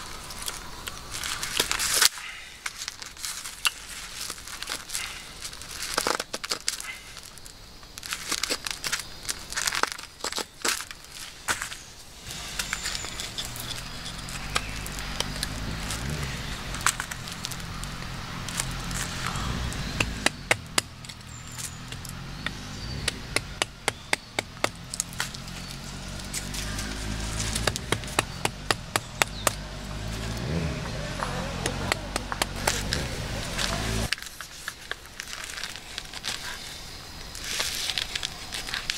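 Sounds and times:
mallet tapping a carving gouge: 0:19.9 - 0:20.9, 0:21.9 - 0:24.8, 0:27.5 - 0:29.6, 0:31.6 - 0:32.7.

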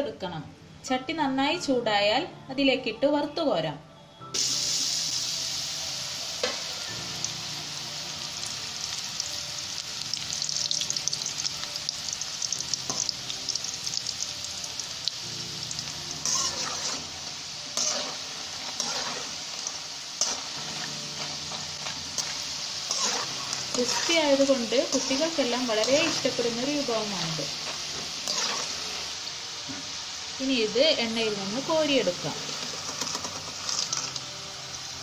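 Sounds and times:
dough sizzling in hot oil: 0:04.4 - 0:35.0
spatula scraping a wok: 0:16.1 - 0:29.2, 0:32.5 - 0:34.2.

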